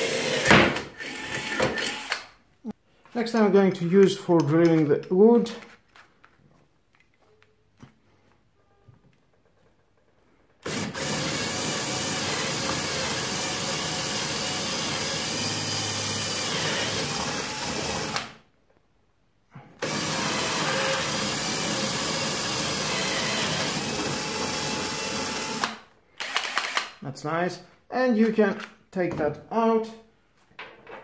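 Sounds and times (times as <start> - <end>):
cordless drill boring into wood: 0.0 - 2.3, 10.6 - 18.4, 19.8 - 27.0.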